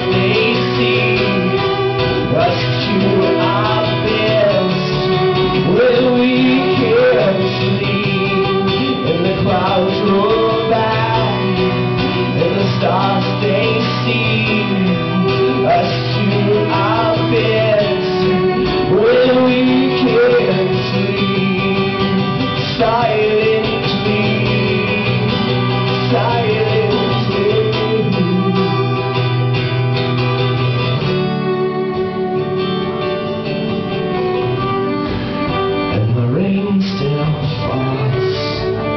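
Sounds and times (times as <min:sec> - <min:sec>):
man singing: 0:00.0 - 0:29.6, 0:35.8 - 0:38.9
fiddle: 0:00.0 - 0:38.9
strummed acoustic guitar: 0:00.0 - 0:38.9.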